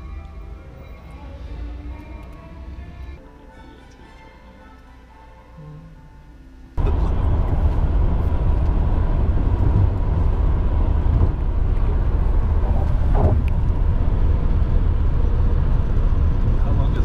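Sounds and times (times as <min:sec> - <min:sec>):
faint music: 0:00.0 - 0:07.8
car road and engine noise: 0:06.8 - 0:17.0.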